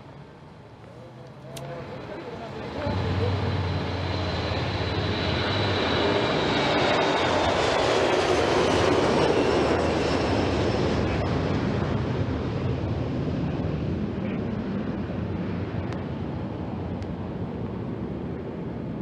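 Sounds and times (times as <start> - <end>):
jet engines roaring: 0.4 - 19.0
high whine gliding downward: 1.4 - 12.0.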